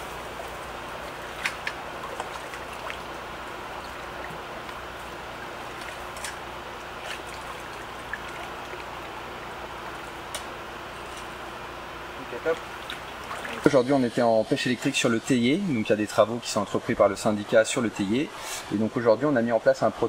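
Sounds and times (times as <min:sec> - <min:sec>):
stream water trickling: 0:00.0 - 0:11.0, 0:12.2 - 0:19.9
splashes and knocks of wading: 0:00.1 - 0:10.6, 0:12.4 - 0:13.8.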